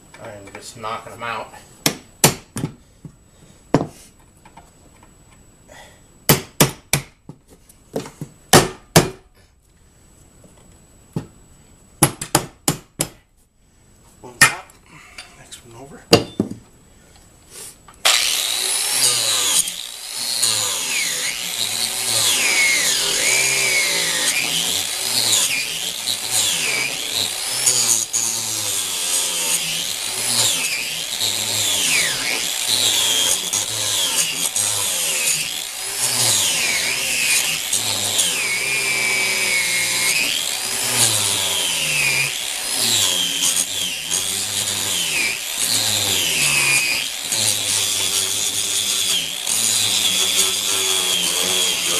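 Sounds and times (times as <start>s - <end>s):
angle grinder cutting steel: 18.0s - 51.9s.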